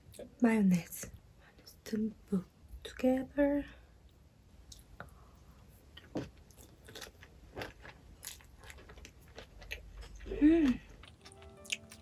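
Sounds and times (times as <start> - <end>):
wet crunchy chewing: 6.0 - 12.0
person humming mmm: 10.2 - 12.0.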